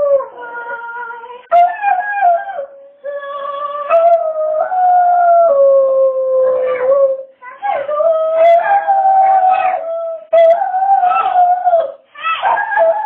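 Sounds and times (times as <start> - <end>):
dog howling: 0.0 - 13.0.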